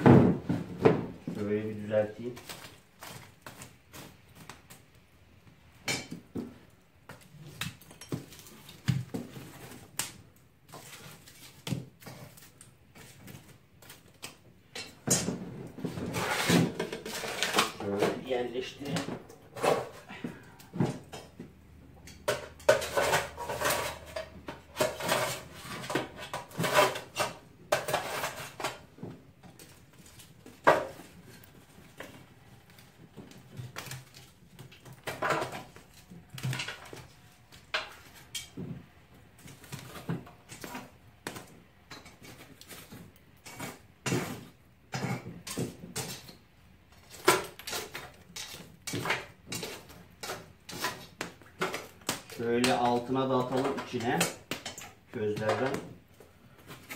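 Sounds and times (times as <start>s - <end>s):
fireplace tool scraping metal: 14.7s - 21.4s, 22.0s - 28.9s, 41.9s - 55.9s.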